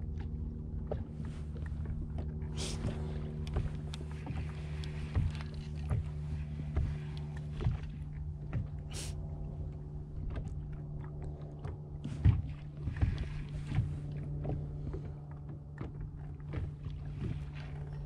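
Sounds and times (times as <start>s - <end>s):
boat motor humming: 0.0s - 18.0s
light knocks and clicks: 0.8s - 8.8s.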